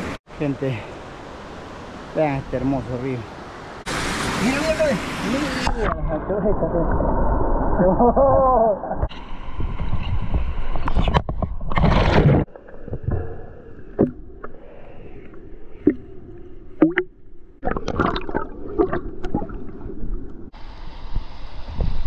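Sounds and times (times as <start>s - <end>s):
muffled underwater river sound: 0.8s - 22.0s
water sloshing: 15.3s - 20.5s
bubbling: 15.7s - 20.5s
underwater clicks and knocks: 16.8s - 17.2s.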